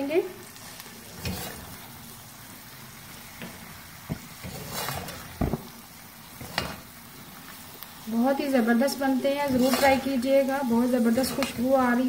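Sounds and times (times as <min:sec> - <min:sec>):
food sizzling in pot: 0:00.0 - 0:12.0
metal spatula scraping pot: 0:01.1 - 0:01.9, 0:04.2 - 0:05.7, 0:06.3 - 0:06.9, 0:09.4 - 0:12.0.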